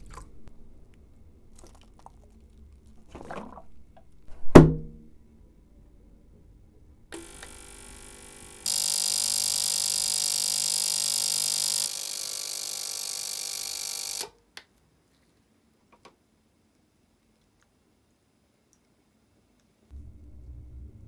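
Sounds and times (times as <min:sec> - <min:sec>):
ultrasonic cleaner high buzz: 0:07.1 - 0:14.3.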